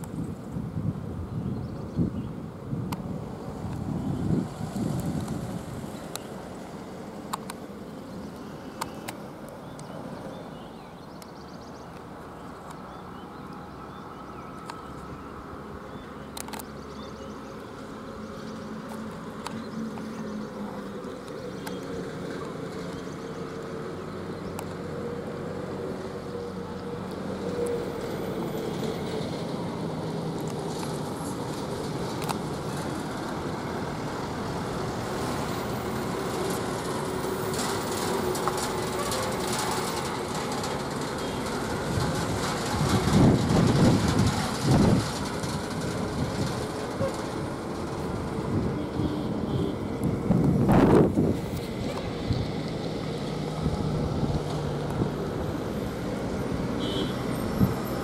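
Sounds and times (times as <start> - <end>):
diesel truck engine rumble: 12.0 - 58.0.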